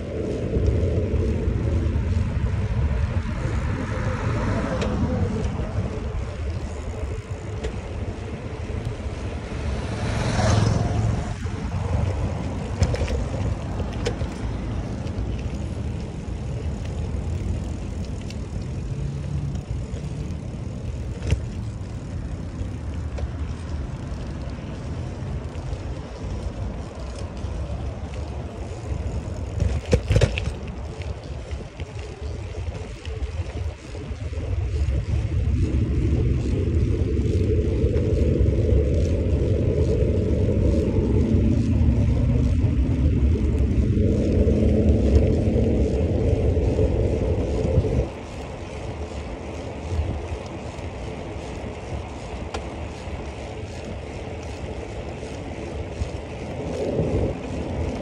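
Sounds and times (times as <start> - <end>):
wind and road rumble: 0.0 - 58.0
bicycle knock or rattle: 12.5 - 14.6, 28.7 - 31.0.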